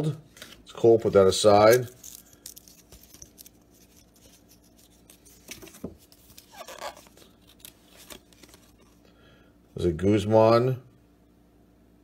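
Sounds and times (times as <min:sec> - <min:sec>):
cardboard cards shuffling: 0:01.7 - 0:09.0.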